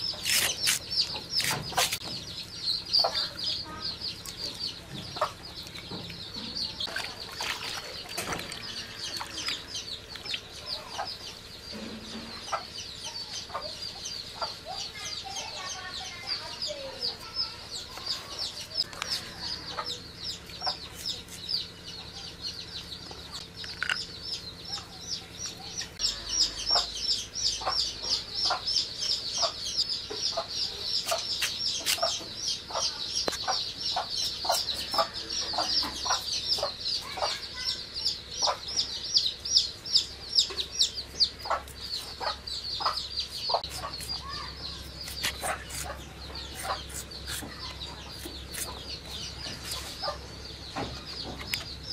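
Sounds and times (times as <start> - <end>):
blade slicing vegetables: 0.0 - 2.1, 43.3 - 50.0
chickens clucking: 0.0 - 51.9
rapid high chirps: 23.5 - 50.2.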